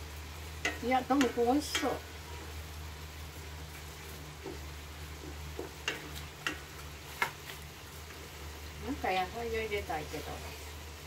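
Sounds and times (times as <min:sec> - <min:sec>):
spatula stirring rice in pan: 0:00.0 - 0:11.0
spatula tapping and scraping pan: 0:00.6 - 0:02.0, 0:04.4 - 0:07.6.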